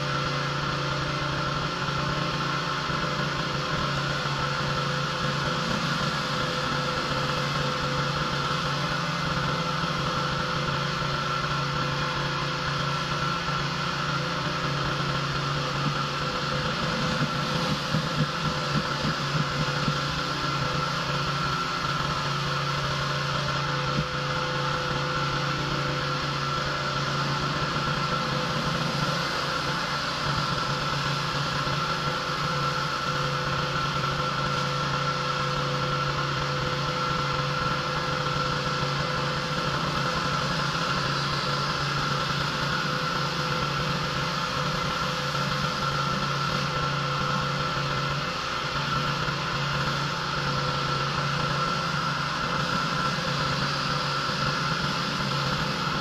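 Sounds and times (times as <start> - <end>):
pressure washer engine running: 0.0 - 56.0.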